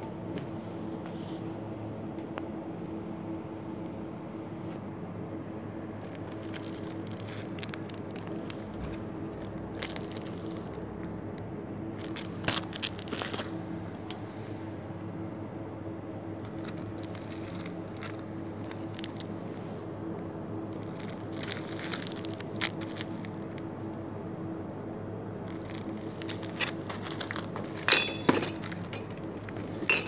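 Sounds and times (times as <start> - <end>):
steady low hum: 0.0 - 30.0
plastic packaging rustling: 6.0 - 11.1, 12.0 - 13.6, 16.4 - 19.3, 20.7 - 23.6, 25.5 - 30.0
sharp clink: 27.9 - 29.1.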